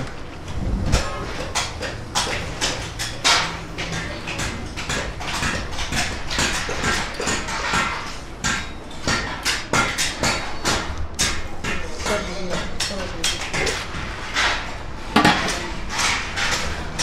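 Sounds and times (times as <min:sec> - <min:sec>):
low rumble: 0:00.0 - 0:01.3
rapid irregular knocks and clatter: 0:00.0 - 0:17.0.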